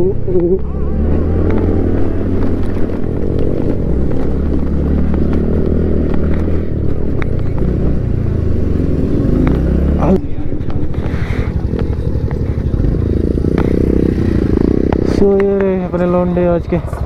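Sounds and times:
scooter engine running: 0.0s - 17.0s
knocks and clatter from rough ground: 2.3s - 8.4s.

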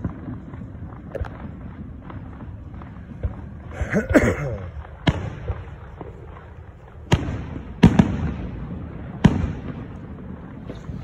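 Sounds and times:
fireworks booming: 0.0s - 11.0s
low rolling echo: 0.0s - 11.0s.

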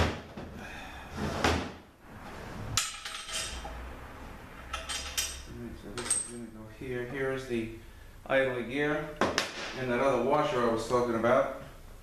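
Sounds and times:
steel parts clinking and knocking: 2.8s - 3.8s, 4.6s - 6.4s.

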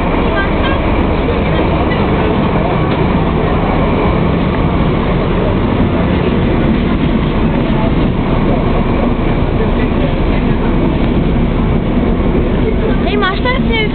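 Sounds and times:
diesel locomotive engine rumbling: 0.0s - 13.9s.

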